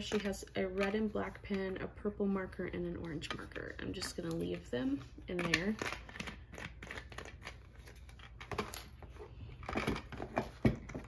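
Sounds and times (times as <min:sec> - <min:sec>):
plastic items rustling and clicking: 0:00.0 - 0:02.0, 0:02.6 - 0:11.0.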